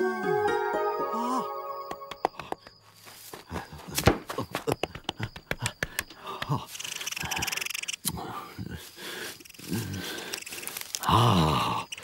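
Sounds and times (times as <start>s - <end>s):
cartoon knocks and clatters: 4.0s - 6.5s
hissing rustle: 8.8s - 11.1s.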